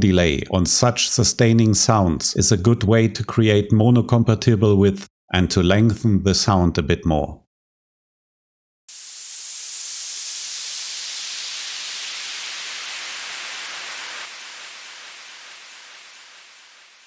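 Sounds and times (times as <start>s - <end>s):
filtered white noise downlifter: 8.9s - 17.0s.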